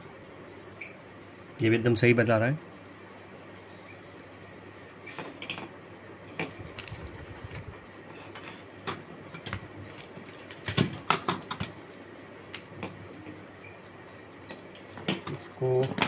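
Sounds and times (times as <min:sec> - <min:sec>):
multimeter probes clicking and knocking: 0:06.4 - 0:07.7.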